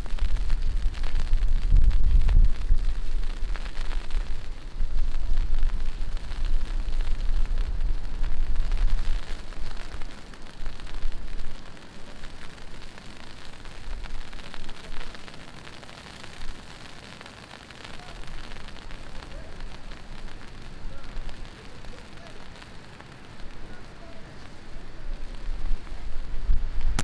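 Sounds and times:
low rumble: 0.0 - 9.8
heavy rain falling: 0.0 - 27.0.

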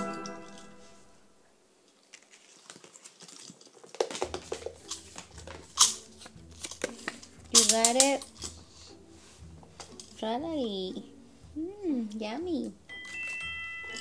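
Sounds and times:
paper crinkling: 1.9 - 8.0.

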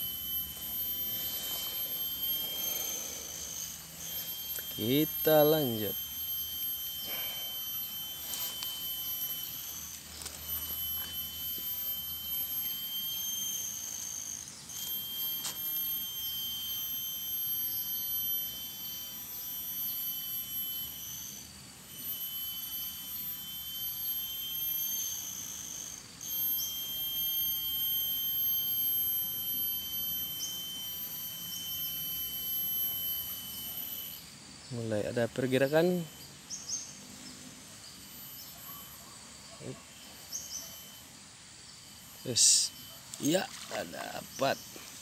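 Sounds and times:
insects calling: 0.0 - 45.0.

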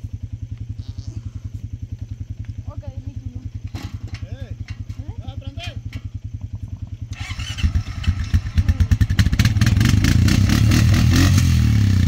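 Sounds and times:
quad bike engine revving: 6.4 - 12.0.

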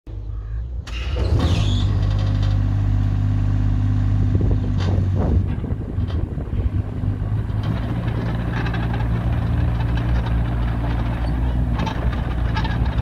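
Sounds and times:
excavator diesel engine running: 0.1 - 13.0
hydraulic arm clunks and squeaks: 0.3 - 2.7, 7.4 - 13.0.

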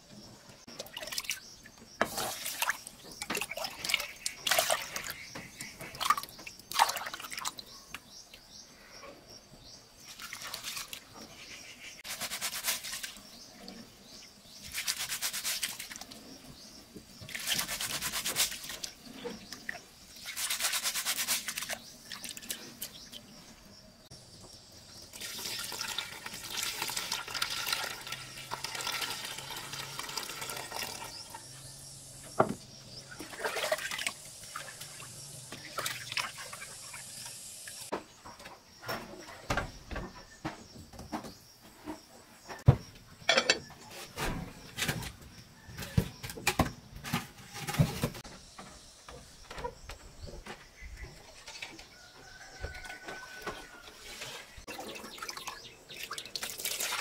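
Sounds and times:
hands washing rice in water: 2.0 - 7.6, 10.1 - 11.1, 12.0 - 13.3, 14.6 - 16.2, 17.2 - 19.0, 19.6 - 23.0, 33.2 - 37.1
water pouring into a pot: 25.1 - 31.4, 54.7 - 57.0.

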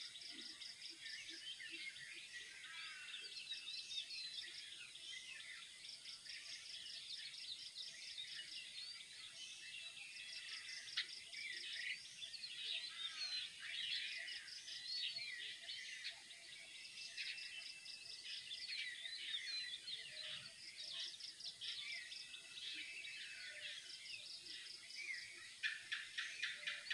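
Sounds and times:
birds chirping and calling: 0.0 - 26.9.

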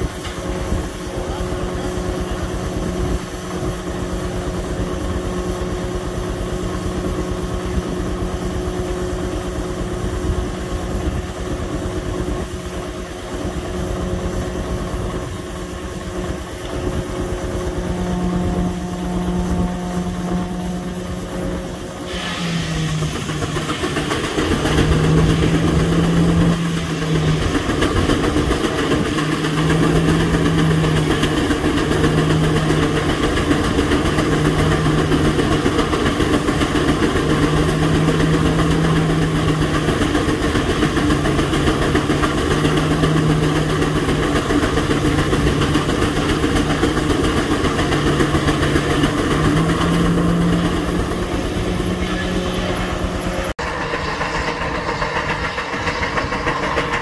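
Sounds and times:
steam engine working: 0.0 - 57.0
circular saw cutting log: 16.7 - 57.0.

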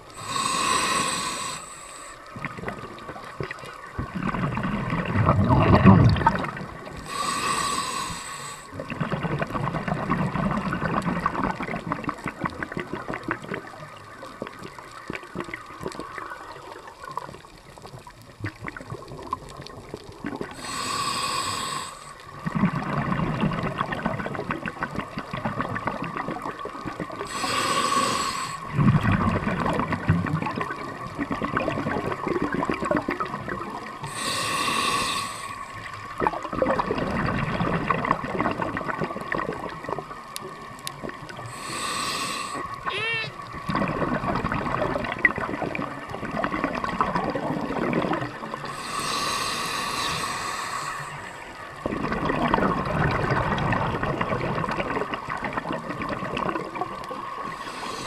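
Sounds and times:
regulator breathing hiss: 0.2 - 2.3, 7.0 - 8.7, 20.6 - 22.2, 27.3 - 28.7, 34.0 - 35.9, 41.5 - 42.8, 48.6 - 51.4, 57.5 - 58.0
bubbles burbling: 2.3 - 7.4, 8.7 - 20.8, 22.3 - 35.0, 35.7 - 41.9, 42.6 - 48.8, 51.6 - 58.0.

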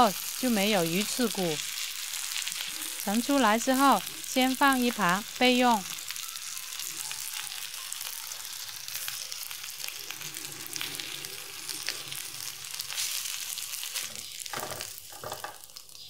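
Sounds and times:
oil sizzling in a frying pan: 0.0 - 16.0.

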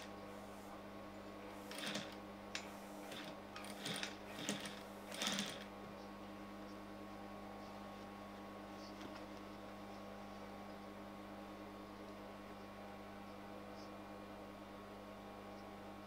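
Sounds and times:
steady low hum: 0.0 - 16.0
sewing machine stitching: 1.7 - 2.2, 2.8 - 5.7.

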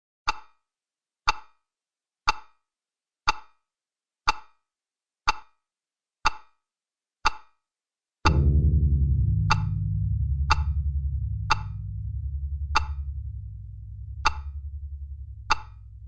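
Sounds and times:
deep low drone: 8.3 - 16.0.

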